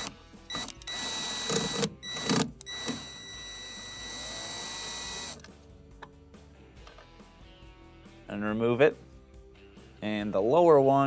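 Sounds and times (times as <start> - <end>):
drill motor whirring: 0.0 - 5.4.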